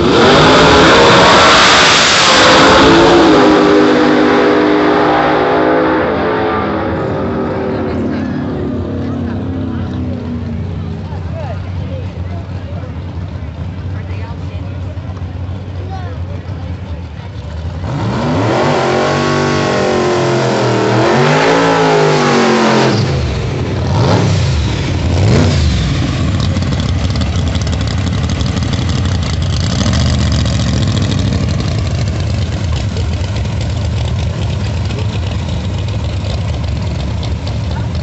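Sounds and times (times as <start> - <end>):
car engine revving: 0.0 - 14.0, 16.8 - 38.0
car engine idling: 6.7 - 18.0, 22.4 - 38.0.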